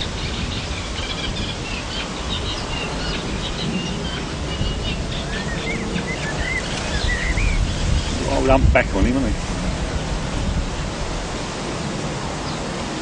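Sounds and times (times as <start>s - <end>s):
small birds chirping: 0.0s - 9.4s, 12.4s - 13.0s.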